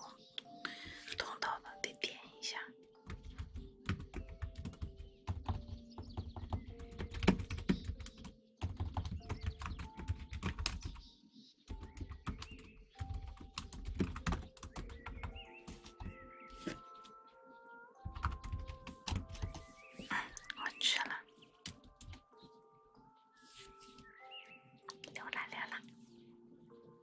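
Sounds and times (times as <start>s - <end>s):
computer keyboard typing: 3.0s - 11.0s, 11.7s - 16.8s, 18.1s - 19.7s, 21.6s - 22.2s.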